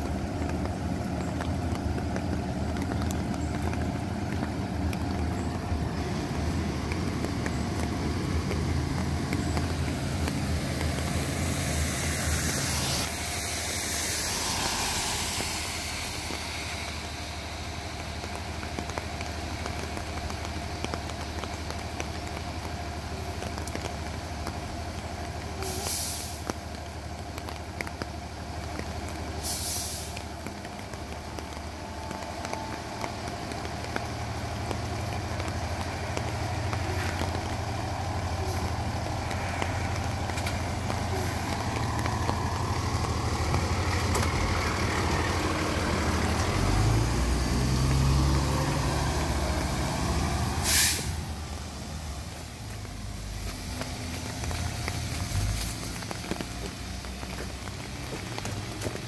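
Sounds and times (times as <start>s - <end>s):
diesel engine running: 0.0s - 59.0s
air brakes hissing: 11.2s - 17.6s, 25.6s - 26.4s, 29.4s - 30.2s, 50.5s - 51.2s.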